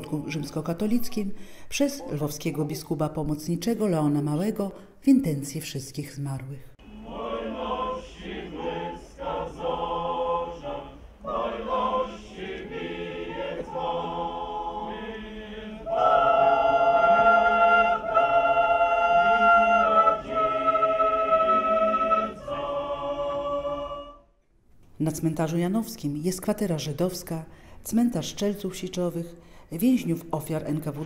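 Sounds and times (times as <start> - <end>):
mixed choir singing: 0.0 - 1.0, 6.8 - 24.3.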